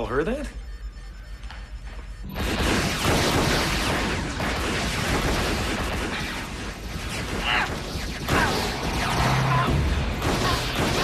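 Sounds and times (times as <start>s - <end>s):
dense gunfire: 2.3s - 11.0s.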